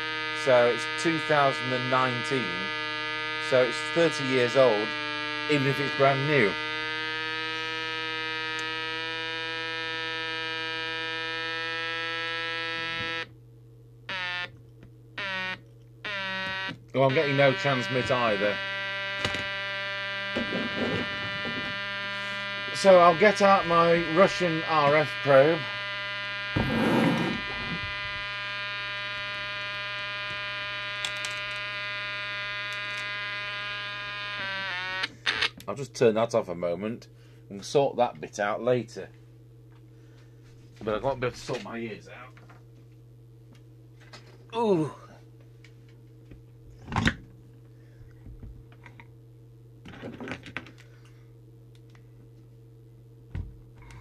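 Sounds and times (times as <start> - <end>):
buzzy electronic tone: 0.0 - 13.3, 14.1 - 14.5, 15.2 - 35.6.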